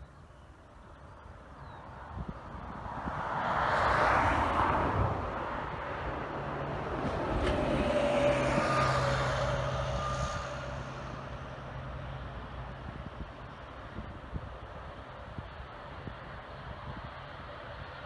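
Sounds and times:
broad rush of noise: 0:00.0 - 0:18.0
engine whine: 0:04.2 - 0:18.0
propeller airliner engines drone: 0:04.2 - 0:18.0.

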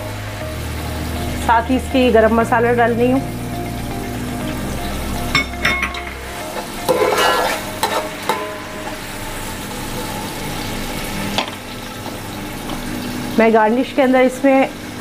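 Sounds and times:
onion sizzling in hot oil: 0:00.0 - 0:15.0
metal spoon scraping pot: 0:06.9 - 0:08.4.

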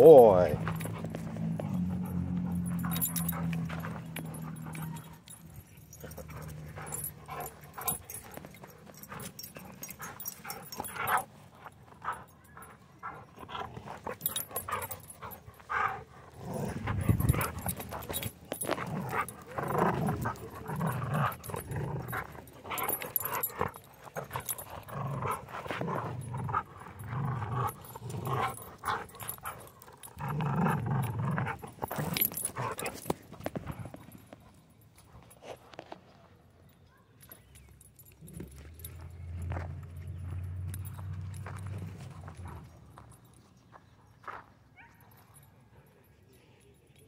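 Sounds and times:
dog growling in play: 0:15.7 - 0:32.9.

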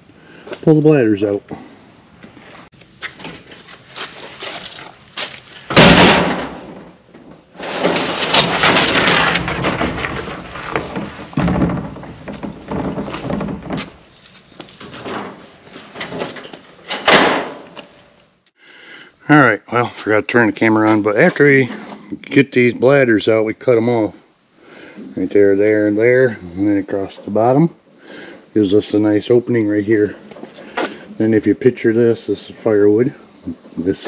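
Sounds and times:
plastic tote crashing onto concrete: 0:05.7 - 0:07.0, 0:07.6 - 0:13.6
small knocks: 0:05.7 - 0:15.4
plastic bladder scraping and rustling: 0:07.5 - 0:16.8.

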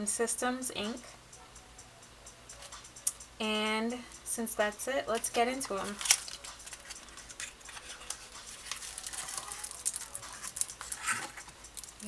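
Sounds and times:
paperboard rustling: 0:05.8 - 0:11.6.

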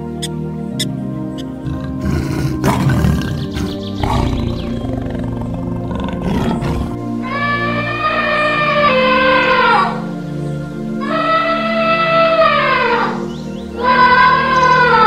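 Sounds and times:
background music with held notes: 0:00.0 - 0:15.0
tiger roaring: 0:01.4 - 0:07.0.

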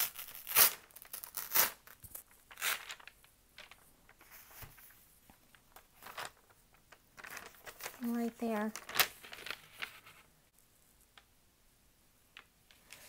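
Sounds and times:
paper rustling: 0:01.9 - 0:10.3.

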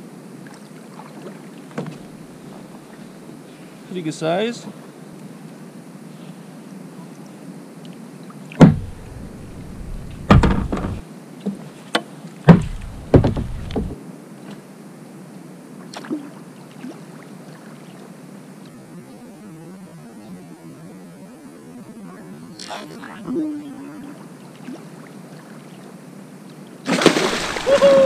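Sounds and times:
faint steady background noise: 0:00.0 - 0:28.0
knocks on plastic kayak hull: 0:08.6 - 0:11.0, 0:12.0 - 0:14.0.

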